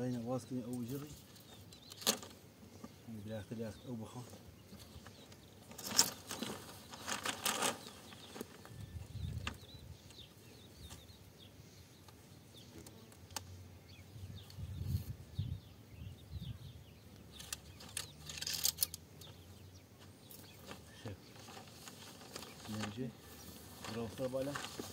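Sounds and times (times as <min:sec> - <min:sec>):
plastic pipe rustling and scraping: 0:04.2 - 0:08.8, 0:20.0 - 0:24.9
wind rumble on microphone: 0:08.7 - 0:10.1, 0:14.1 - 0:17.0.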